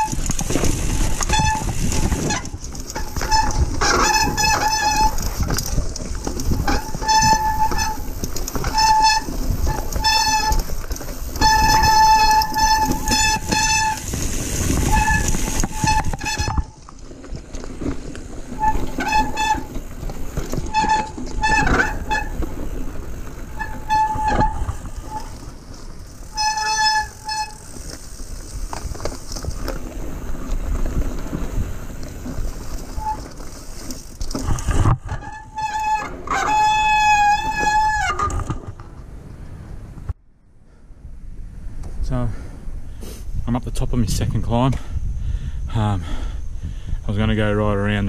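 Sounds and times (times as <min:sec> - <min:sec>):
bike brakes squealing: 0:00.0 - 0:16.8, 0:18.4 - 0:29.9, 0:31.6 - 0:38.4
bike rattling over rocky trail: 0:00.0 - 0:39.2.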